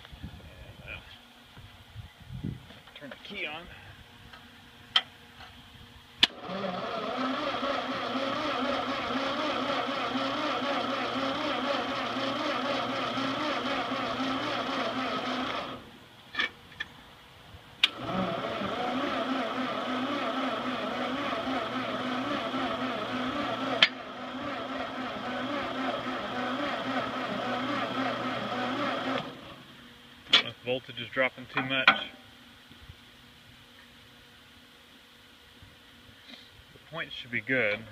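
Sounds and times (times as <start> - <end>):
starter cranking engine: 6.2 - 15.9, 17.8 - 29.6.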